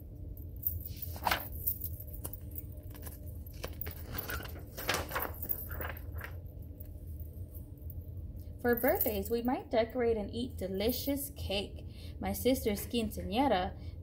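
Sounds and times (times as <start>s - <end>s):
low room hum: 0.0s - 14.0s
paper rustling: 0.9s - 6.5s.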